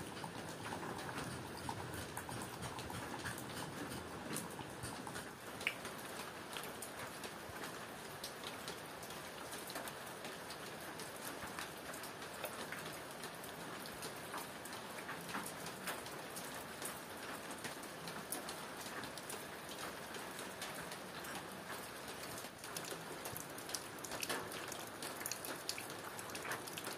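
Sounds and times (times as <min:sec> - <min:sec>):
rain pattering: 0:00.0 - 0:26.9.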